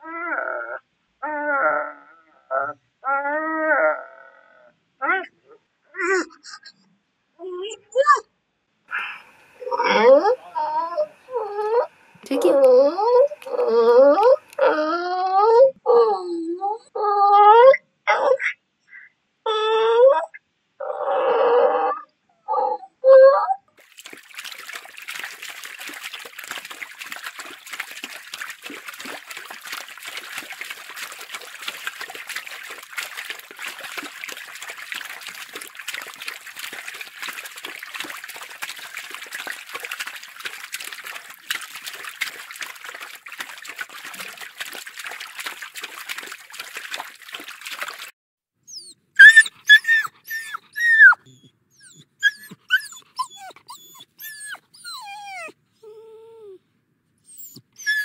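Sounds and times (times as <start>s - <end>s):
puppy whimpering: 9.6s - 18.4s, 48.7s - 56.6s, 57.3s - 58.0s
water splashing from dog swimming: 23.8s - 48.2s.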